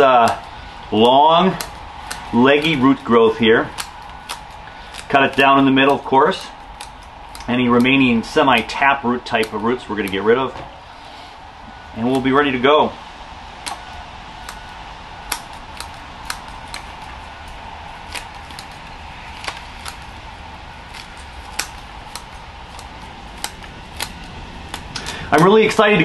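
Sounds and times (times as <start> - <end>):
scissors snipping roots: 0.0 - 11.2, 12.0 - 12.6, 13.6 - 25.8
steady background hum: 0.0 - 26.0.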